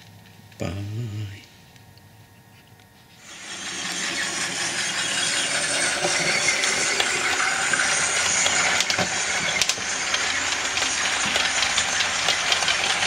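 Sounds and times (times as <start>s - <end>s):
model train running: 3.2s - 13.0s
wheels clicking on rails: 3.3s - 13.0s.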